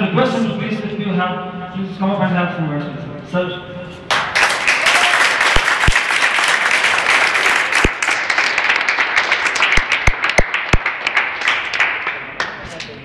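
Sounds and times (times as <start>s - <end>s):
group clapping: 4.1s - 13.0s.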